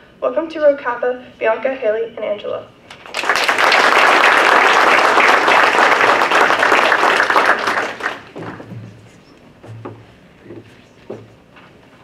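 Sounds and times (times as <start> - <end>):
audience applauding: 3.0 - 8.6.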